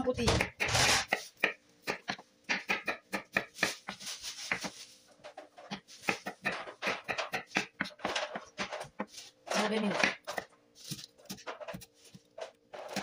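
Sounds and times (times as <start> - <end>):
knife tapping on cutting board: 1.4 - 3.8.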